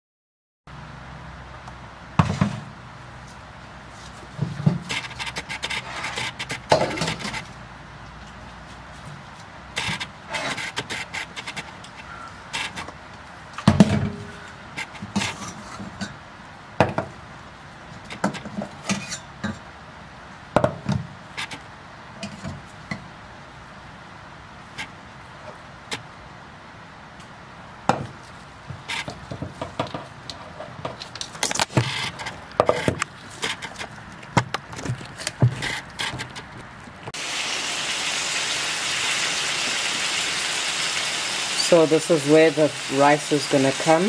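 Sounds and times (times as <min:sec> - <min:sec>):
pots and utensils clattering: 0:04.7 - 0:07.4.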